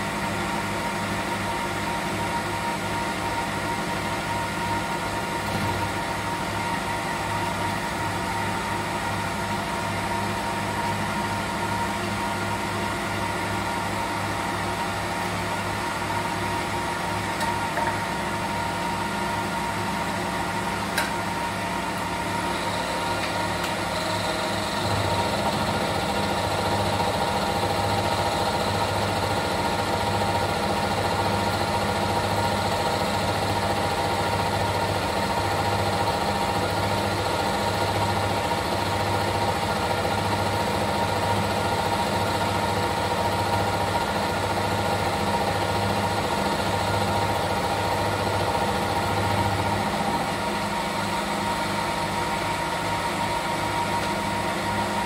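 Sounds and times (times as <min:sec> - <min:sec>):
milling machine cutting metal: 0:21.0 - 0:37.8.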